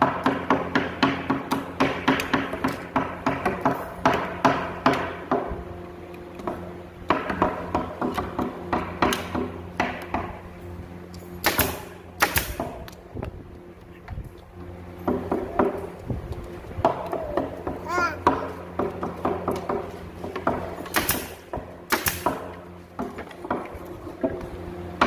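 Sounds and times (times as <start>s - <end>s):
nail gun shots: 7.1s - 10.4s, 11.4s - 13.0s, 20.4s - 23.6s.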